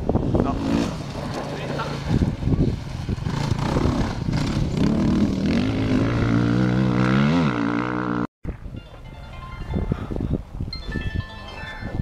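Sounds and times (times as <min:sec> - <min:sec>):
motorcycle engine running hard: 0:00.4 - 0:08.2.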